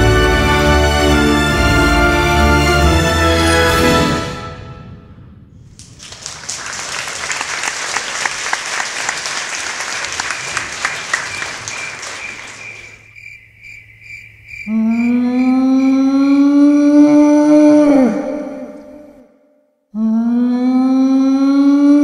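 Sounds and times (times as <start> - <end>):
audience applauding: 5.8 - 13.2
high pulsing chirp: 10.4 - 16.1.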